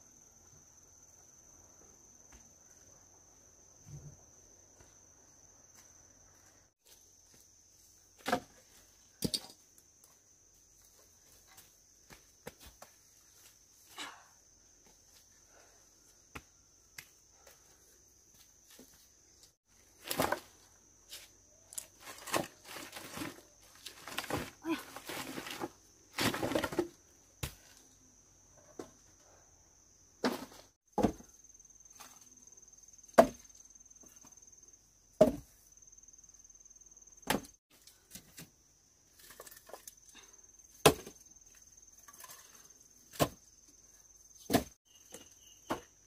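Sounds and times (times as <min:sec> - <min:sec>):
crickets chirping drone: 0:00.0 - 0:19.6, 0:27.1 - 0:37.7, 0:38.6 - 0:46.0
rustles: 0:17.5 - 0:27.0.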